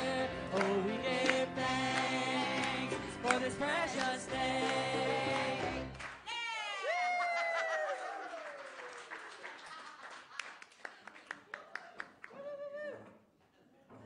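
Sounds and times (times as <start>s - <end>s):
congregation singing a hymn: 0.0s - 6.0s
piano: 0.0s - 6.2s
person whooping: 6.3s - 8.6s, 12.3s - 13.1s
hand clapping: 7.2s - 12.4s.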